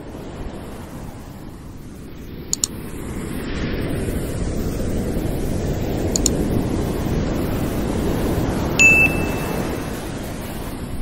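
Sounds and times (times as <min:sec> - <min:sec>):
ocean surf rushing: 0:00.0 - 0:11.0
mouse double click: 0:02.5 - 0:02.7, 0:06.2 - 0:06.4.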